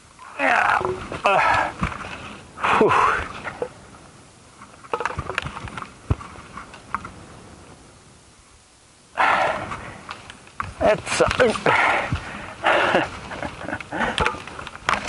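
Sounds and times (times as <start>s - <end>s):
heavy voiced breaths of effort: 9.2s - 10.0s.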